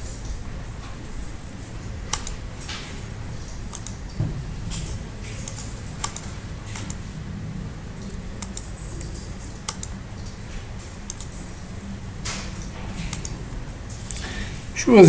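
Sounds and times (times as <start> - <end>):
steady low hum: 0.0 - 15.0
keyboard keystrokes: 5.4 - 7.0, 9.7 - 10.0, 11.1 - 11.3.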